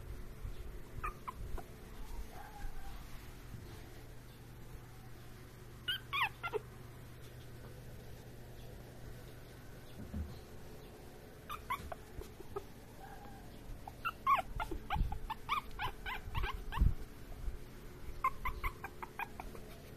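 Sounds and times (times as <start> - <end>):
puppy whimpering: 1.0 - 3.0, 5.8 - 6.7, 11.4 - 17.1, 18.1 - 19.9.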